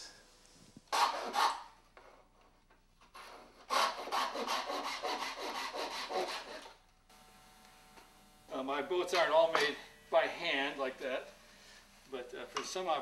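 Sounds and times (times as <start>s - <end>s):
hand saw cutting wood: 0.9s - 1.7s, 3.2s - 6.8s.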